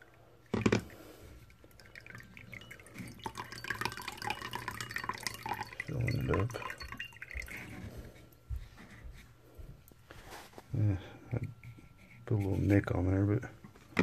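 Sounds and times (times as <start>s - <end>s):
water trickling into a plate: 0.0s - 8.6s.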